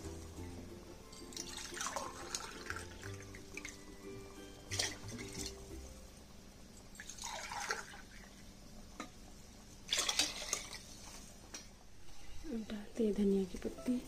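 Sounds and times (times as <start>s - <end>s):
liquid sloshing in a pot: 1.2s - 3.8s, 4.7s - 5.7s, 7.0s - 8.5s, 9.8s - 11.4s.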